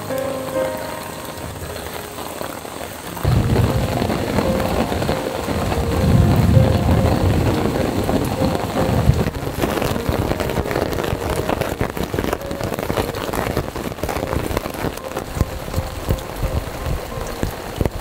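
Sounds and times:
heavy rain patter: 0:00.0 - 0:18.0.

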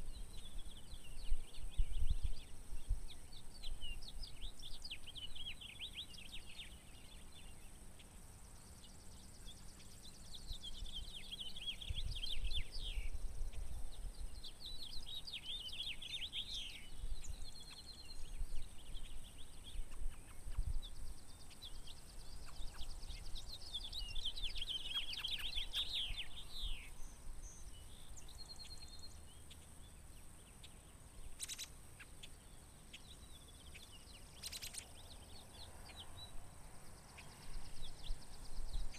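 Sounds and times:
wind rumble on microphone: 0:00.0 - 0:06.4, 0:10.4 - 0:29.0, 0:37.2 - 0:38.9
songbirds singing: 0:00.0 - 0:38.9.

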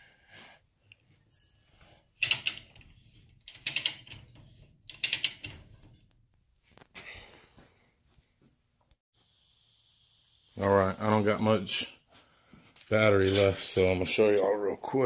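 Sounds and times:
ratchet clicking: 0:02.2 - 0:06.0.

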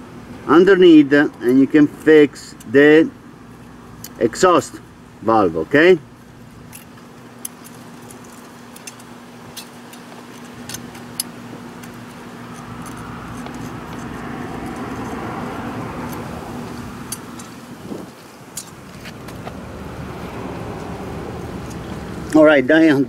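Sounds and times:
steady low hum: 0:00.0 - 0:23.0
wrench metallic clicks: 0:06.7 - 0:16.4, 0:17.0 - 0:17.7, 0:18.5 - 0:18.8.

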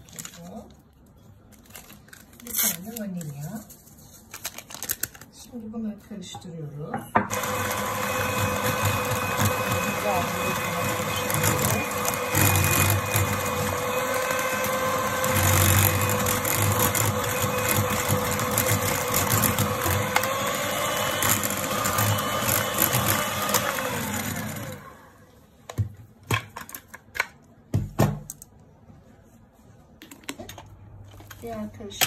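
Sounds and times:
mixer motor winding down: 0:07.3 - 0:25.1
electric hand mixer running: 0:07.3 - 0:25.2.

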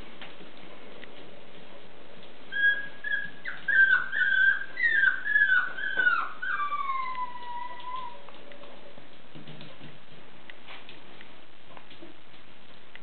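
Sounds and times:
puppy whining: 0:02.5 - 0:08.4.

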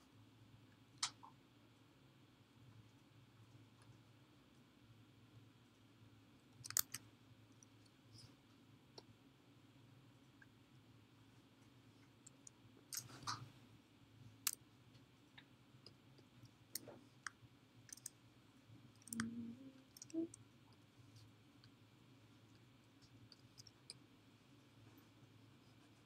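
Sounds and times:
low steady hum: 0:00.0 - 0:26.0
computer mouse and keyboard clicks: 0:06.6 - 0:07.0, 0:12.3 - 0:13.5, 0:16.8 - 0:18.2, 0:19.9 - 0:20.4, 0:23.0 - 0:24.0.

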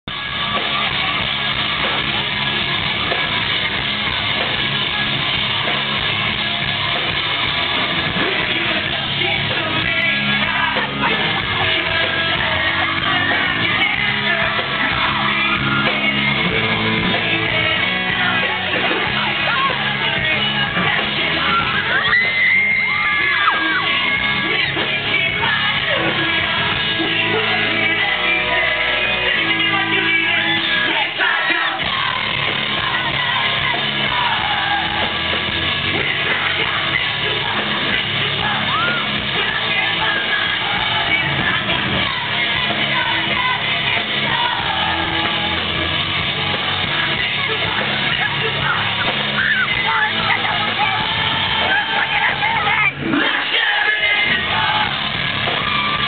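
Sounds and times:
live rock band playing: 0:00.0 - 0:56.0
person singing: 0:07.8 - 0:56.0.

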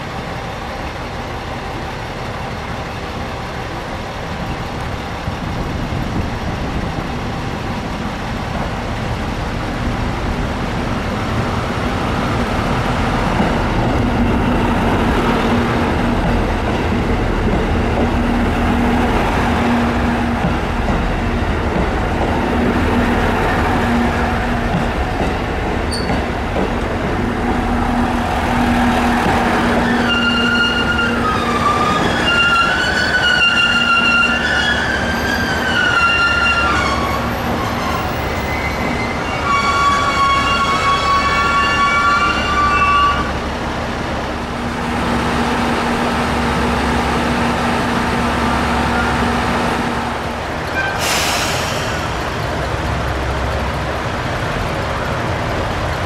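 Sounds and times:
diesel railcar engine hum: 0:00.0 - 0:56.0
high wavering squeal: 0:29.5 - 0:43.3.

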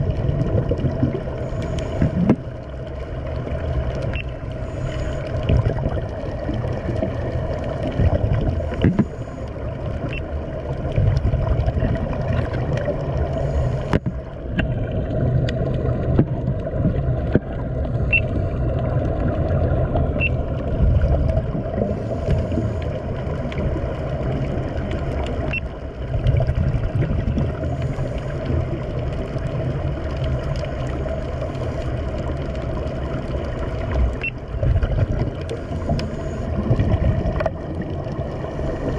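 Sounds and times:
muffled underwater rumble: 0:00.0 - 0:38.9
faint clicks: 0:35.2 - 0:36.2.

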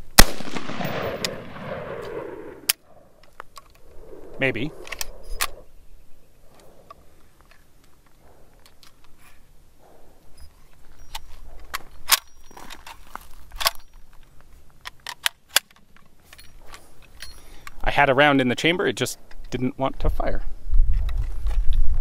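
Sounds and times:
rifle action metallic clicks: 0:00.2 - 0:05.6, 0:10.4 - 0:17.8.

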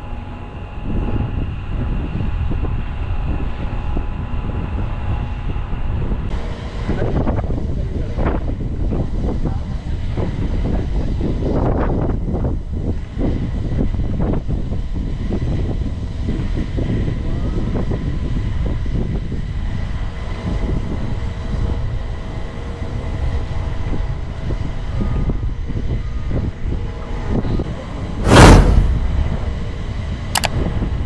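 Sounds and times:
wind buffeting microphone: 0:00.0 - 0:31.0
whoosh sound effect: 0:28.2 - 0:29.3.

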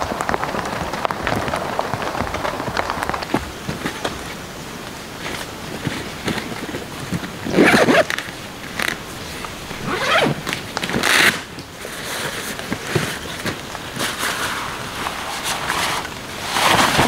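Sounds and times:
fabric rustling: 0:02.0 - 0:17.0
zipper pulled open: 0:07.5 - 0:11.5.

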